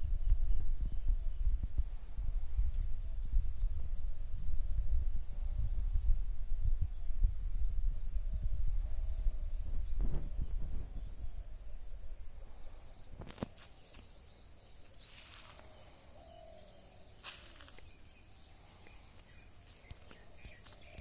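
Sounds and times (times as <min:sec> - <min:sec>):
low rumble on microphone: 0:00.0 - 0:13.6
insects droning: 0:00.0 - 0:21.0
bird chirps: 0:12.8 - 0:21.0.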